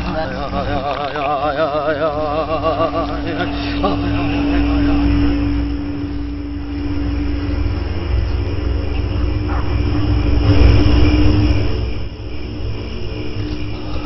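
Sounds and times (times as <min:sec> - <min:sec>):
constant hum: 0:00.0 - 0:14.0
steady low rumble: 0:00.0 - 0:14.0.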